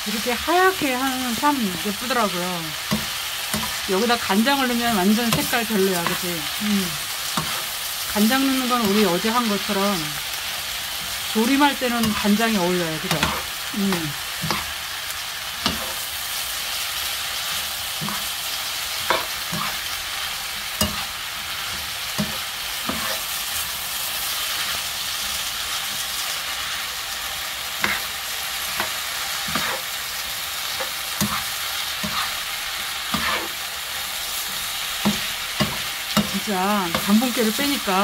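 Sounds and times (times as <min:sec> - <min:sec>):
vegetables sizzling in oil: 0:00.0 - 0:38.0
utensil scraping a pan: 0:33.2 - 0:33.6.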